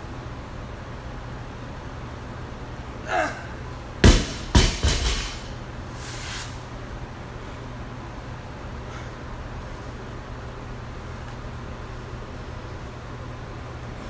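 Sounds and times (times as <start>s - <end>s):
barbell dropped on rubber floor: 4.0s - 5.6s.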